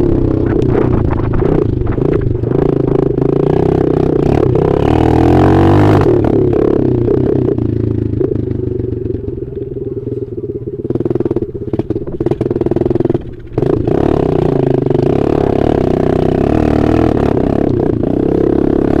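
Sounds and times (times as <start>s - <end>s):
dirt bike engine: 0.0s - 19.0s.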